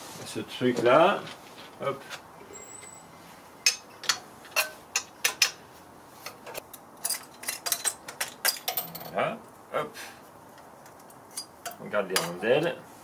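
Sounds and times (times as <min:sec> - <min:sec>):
metal parts clicking and clinking: 0:06.2 - 0:09.2.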